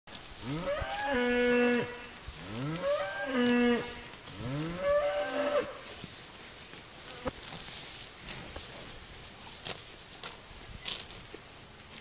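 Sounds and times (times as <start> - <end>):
cows mooing: 0.4 - 5.8.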